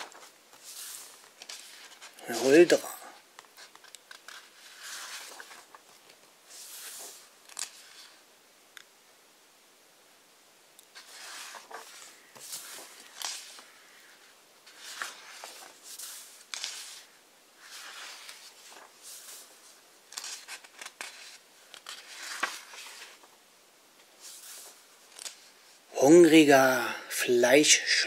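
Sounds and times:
book pages turning: 0:00.0 - 0:08.2, 0:10.9 - 0:23.3, 0:24.1 - 0:25.6.

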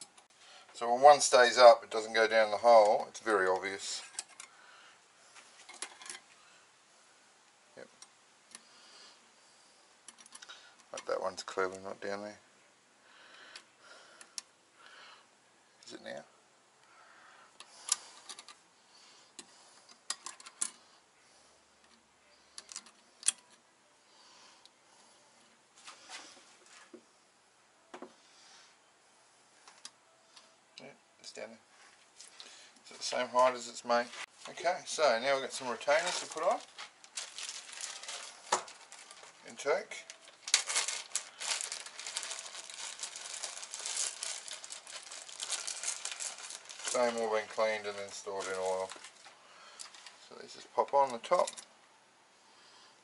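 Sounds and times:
small metal parts rattling: 0:05.6 - 0:06.3, 0:17.8 - 0:18.6, 0:35.8 - 0:39.4, 0:40.0 - 0:50.2, 0:50.9 - 0:51.7
plastic bag crinkling: 0:35.3 - 0:51.7.

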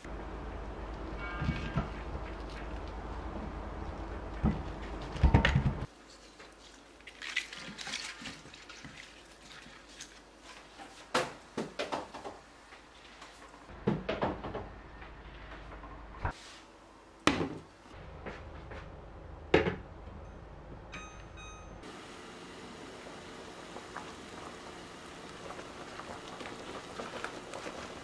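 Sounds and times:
water pouring into pot: 0:23.4 - 0:28.0.

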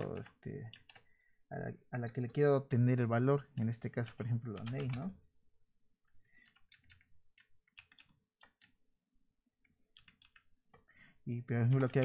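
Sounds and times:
computer keyboard keystrokes: 0:04.5 - 0:05.2, 0:06.4 - 0:08.8, 0:09.9 - 0:10.5, 0:11.6 - 0:12.0.

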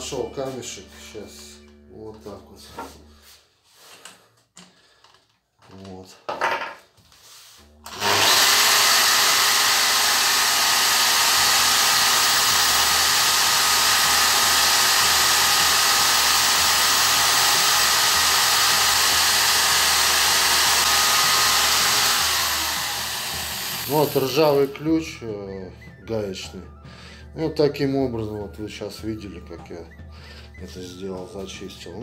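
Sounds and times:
angle grinder grinding rust off steel: 0:07.9 - 0:24.8.

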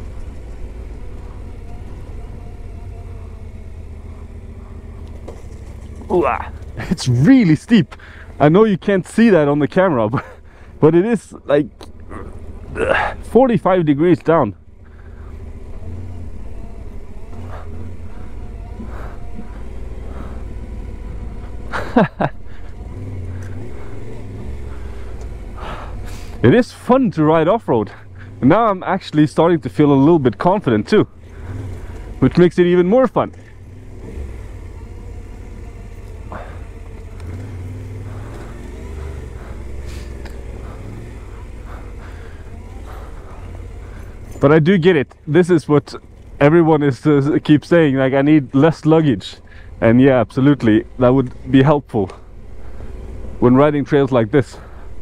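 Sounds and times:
motorcycle engine at low revs: 0:00.0 - 0:55.0
rider's voice: 0:06.0 - 0:14.6, 0:26.4 - 0:31.2, 0:32.1 - 0:33.5, 0:44.4 - 0:52.3, 0:53.3 - 0:54.8.

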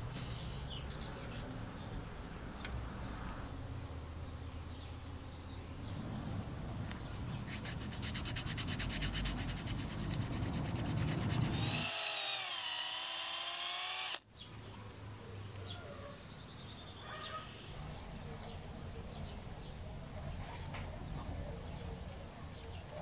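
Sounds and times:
sandpaper rubbing wood: 0:07.5 - 0:14.0
cordless drill whining: 0:11.4 - 0:14.2.

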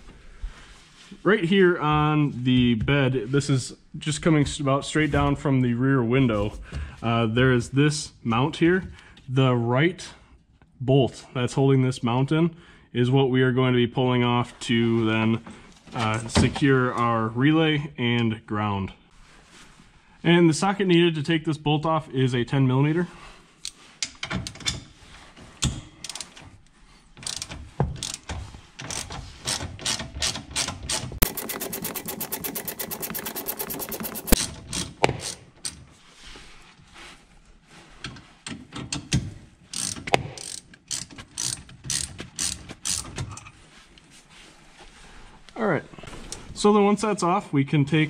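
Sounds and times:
hand ratchet clicking: 0:26.0 - 0:26.4, 0:27.2 - 0:35.8, 0:39.7 - 0:43.2.

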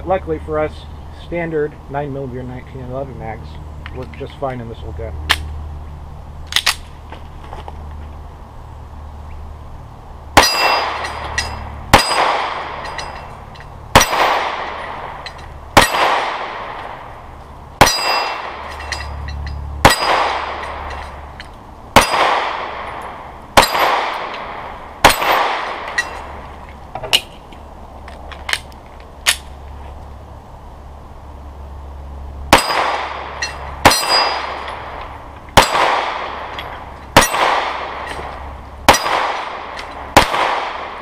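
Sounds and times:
pistol shots echoing: 0:11.9 - 0:12.9, 0:13.9 - 0:15.2, 0:15.8 - 0:16.9, 0:17.8 - 0:18.7, 0:19.8 - 0:20.9, 0:21.9 - 0:23.0, 0:23.6 - 0:26.0, 0:32.5 - 0:34.7, 0:35.6 - 0:36.5, 0:37.2 - 0:38.2, 0:38.8 - 0:41.0.

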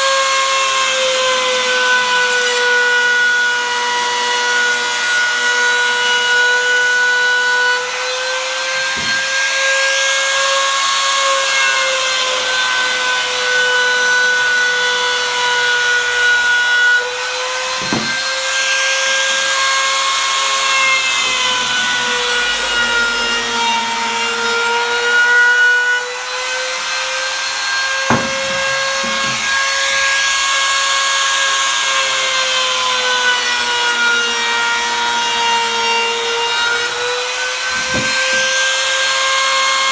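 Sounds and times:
sharp knock: 0:17.8 - 0:18.2, 0:28.1 - 0:29.6.

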